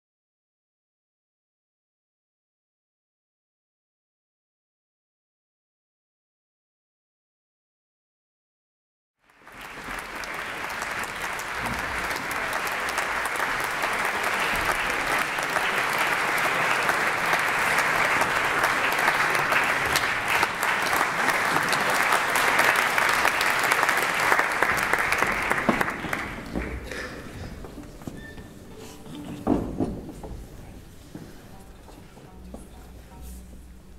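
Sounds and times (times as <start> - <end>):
audience applauding: 9.2 - 28.3.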